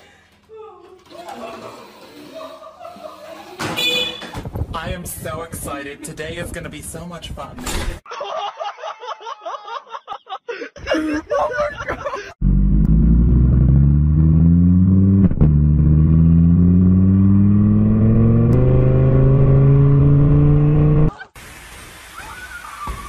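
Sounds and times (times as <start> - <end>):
engine accelerating: 12.4 - 21.1.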